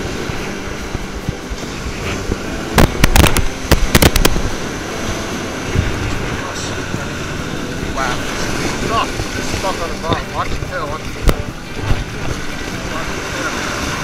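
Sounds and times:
surf washing up beach: 0.0 - 14.0.

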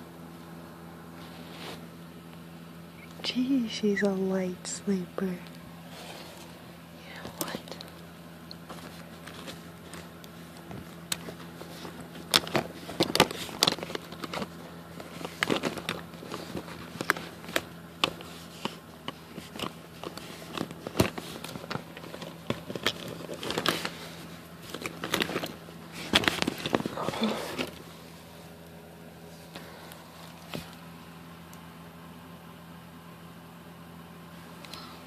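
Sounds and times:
steady low hum: 0.0 - 35.0
phone handling clicks and crackles: 7.3 - 24.0.

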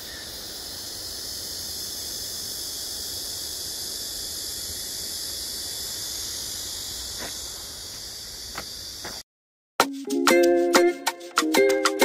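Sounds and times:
cicadas droning: 0.0 - 9.2
plucked-string music: 9.8 - 12.0.

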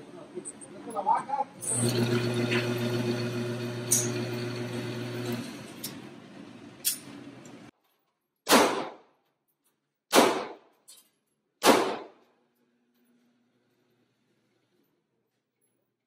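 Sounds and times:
gunshots with echo: 8.5 - 9.0, 10.1 - 10.6, 11.6 - 12.2.

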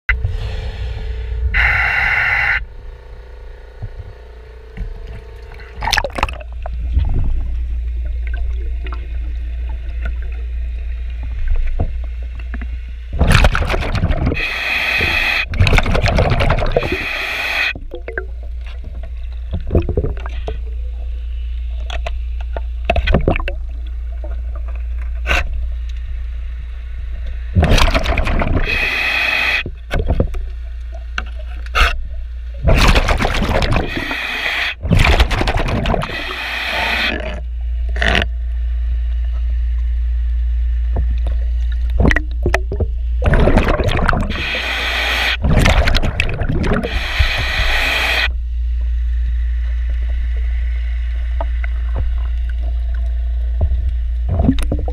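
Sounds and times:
low underwater rumble: 0.1 - 14.5, 15.4 - 17.0, 17.7 - 28.9, 34.8 - 44.6, 45.4 - 54.9
gurgling exhaled bubbles: 5.4 - 12.1, 13.1 - 21.0, 22.9 - 24.7, 27.5 - 30.3, 32.6 - 38.3, 41.8 - 48.3, 54.2 - 54.9.

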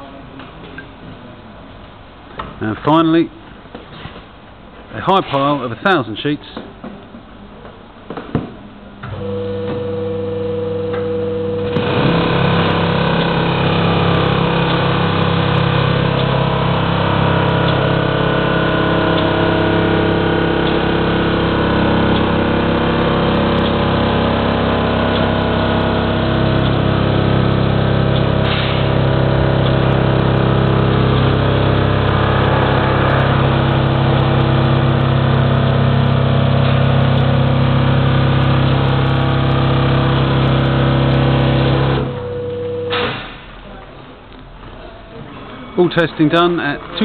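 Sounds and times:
paper counting machine humming: 9.2 - 43.4.

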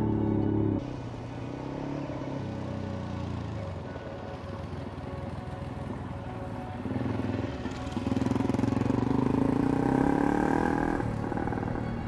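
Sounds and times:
dirt bike engine passing: 6.9 - 12.0.

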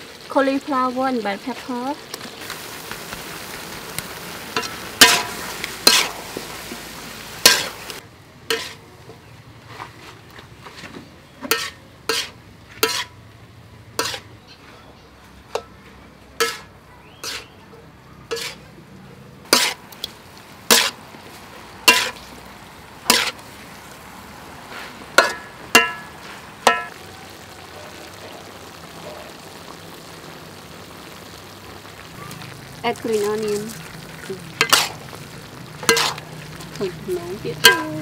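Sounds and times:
food sizzling: 0.0 - 14.4, 15.4 - 38.0
metal spatula clanking on wok: 4.6 - 6.2, 7.5 - 7.7, 11.4 - 13.1, 14.0 - 14.3, 16.4 - 17.5, 18.3 - 18.6, 21.9 - 22.2, 25.2 - 26.9, 34.6 - 35.0, 35.8 - 36.2, 37.6 - 38.0.

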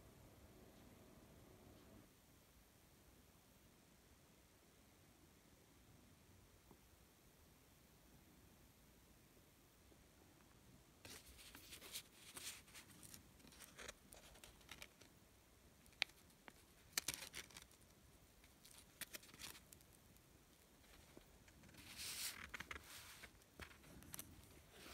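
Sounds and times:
paper envelope rustling: 11.1 - 15.1, 16.0 - 17.8, 18.5 - 19.8, 20.8 - 24.9.

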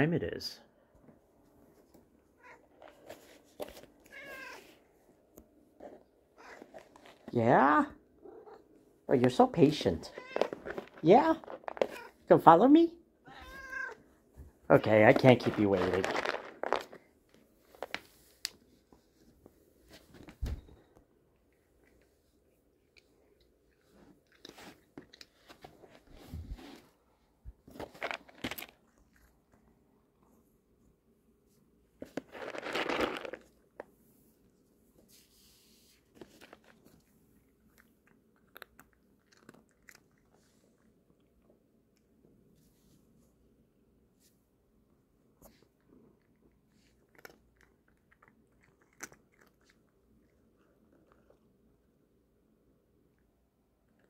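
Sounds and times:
cat crunching dry treats: 9.2 - 12.2, 14.7 - 18.6, 27.7 - 29.8, 32.0 - 33.9, 36.1 - 41.6, 45.8 - 51.6.

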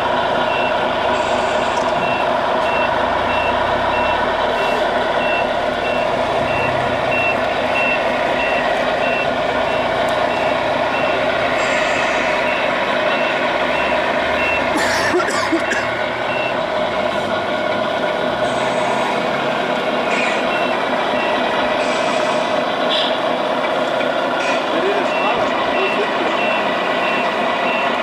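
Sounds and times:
model truck diesel engine sound: 0.0 - 28.0.

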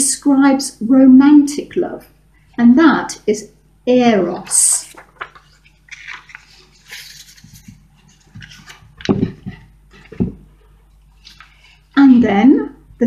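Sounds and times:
paper rustling: 4.4 - 12.3
hand patting board: 8.4 - 10.5.

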